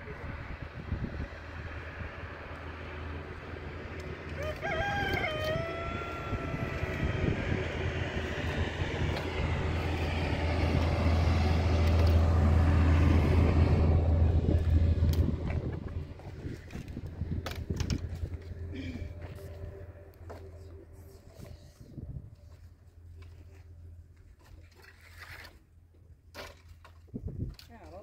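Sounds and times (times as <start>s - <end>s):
low engine drone: 0.0s - 24.7s
rooster crowing: 4.3s - 7.5s.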